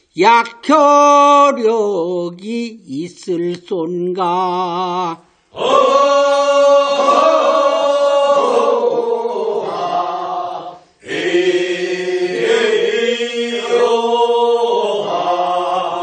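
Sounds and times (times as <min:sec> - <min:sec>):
group singing work song: 0:04.6 - 0:16.0.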